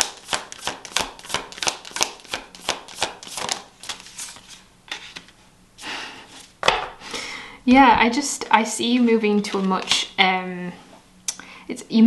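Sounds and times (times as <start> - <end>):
cards being shuffled: 0.0 - 5.3.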